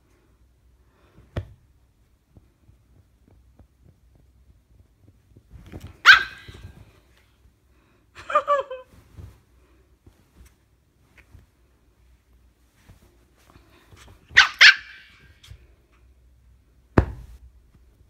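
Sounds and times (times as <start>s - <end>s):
puppy yapping: 6.0s - 6.8s, 14.3s - 15.3s.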